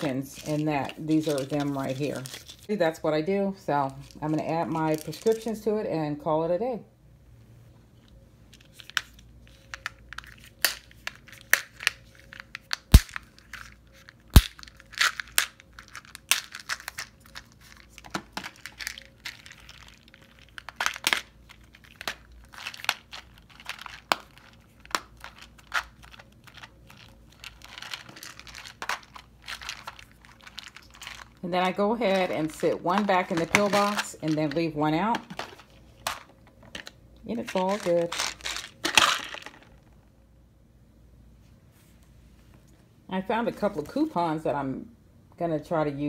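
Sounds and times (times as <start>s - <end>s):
pills rattling: 0.0s - 2.7s, 8.6s - 39.8s.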